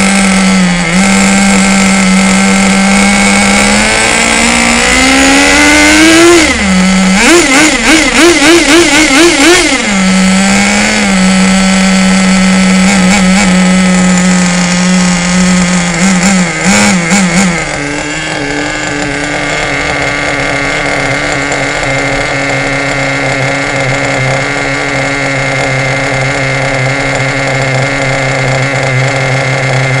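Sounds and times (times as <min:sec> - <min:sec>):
small nitro engine revving: 0:00.0 - 0:30.0.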